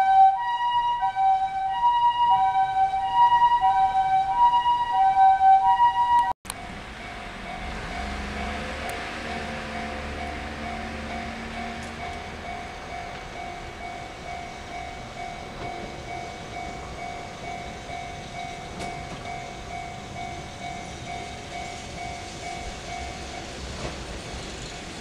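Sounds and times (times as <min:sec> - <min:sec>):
level crossing bell ringing: 0:02.3 - 0:23.5
low traffic rumble: 0:06.4 - 0:25.0.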